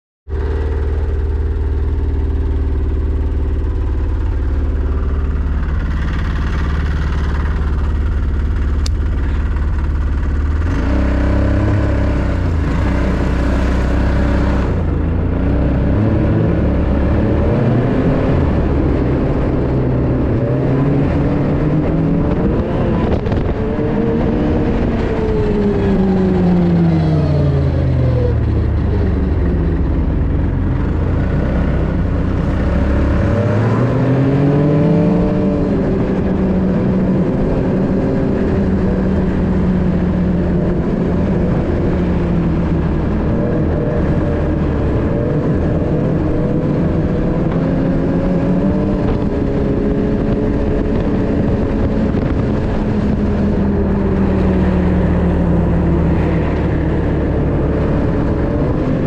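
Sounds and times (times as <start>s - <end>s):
snowmobile engine idling and revving: 0.3s - 59.0s.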